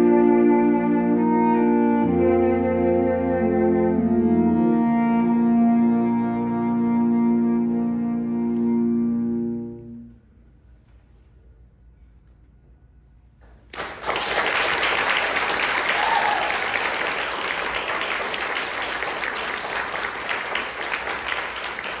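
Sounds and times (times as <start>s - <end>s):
audience applause: 13.7s - 22.0s.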